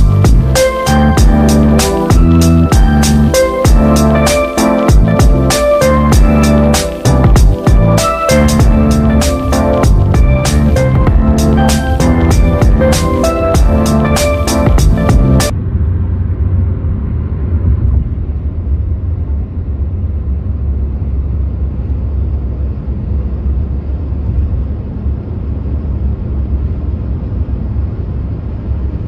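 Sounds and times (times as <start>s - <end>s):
road noise inside moving car: 15.2s - 29.0s.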